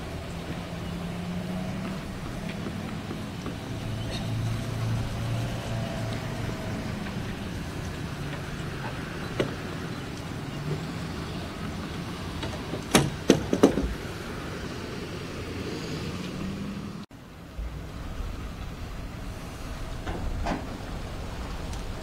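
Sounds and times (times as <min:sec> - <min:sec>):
low engine hum: 0:00.0 - 0:22.0
sharp knocks: 0:12.4 - 0:14.1.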